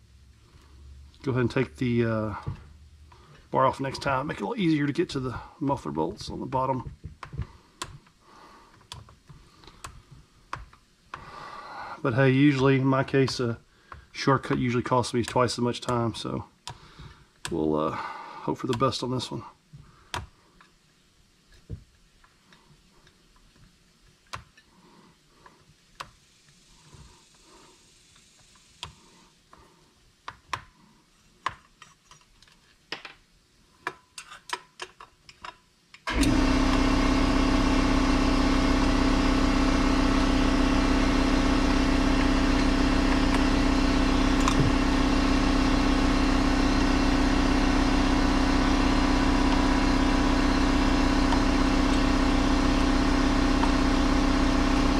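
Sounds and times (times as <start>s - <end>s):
air compressor humming: 1.2s - 7.6s, 36.1s - 54.9s.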